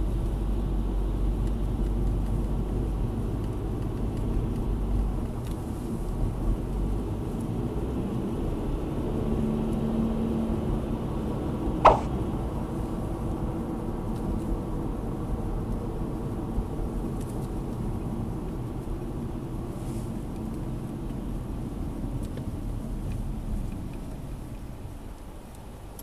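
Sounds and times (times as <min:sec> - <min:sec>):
car engine and tyre rumble: 0:00.0 - 0:26.0.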